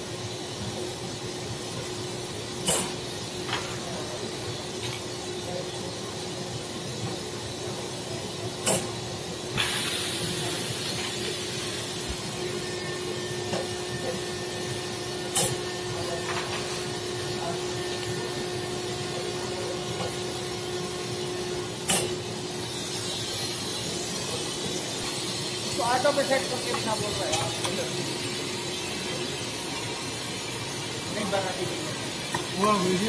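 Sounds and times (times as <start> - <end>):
faint machine hum: 0.0 - 33.0
hiss of air: 2.5 - 3.4, 8.6 - 12.4.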